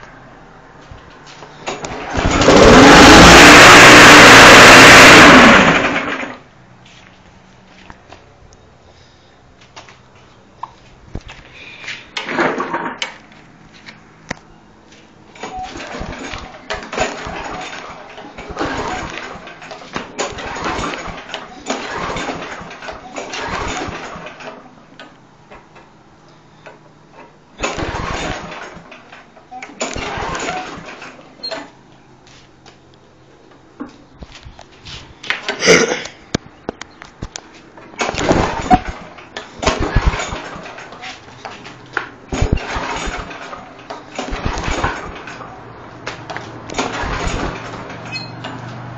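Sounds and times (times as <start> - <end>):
lawn mower engine cranking: 1.6 - 6.5, 12.2 - 13.2, 15.3 - 24.6, 27.6 - 29.2, 29.8 - 31.8, 38.0 - 48.7.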